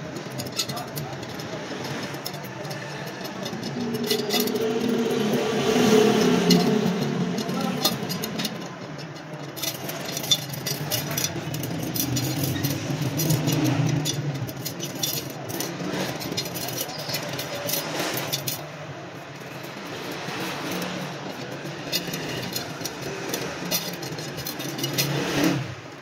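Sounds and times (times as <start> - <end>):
metal spokes clicking and jingling: 0.0 - 26.0.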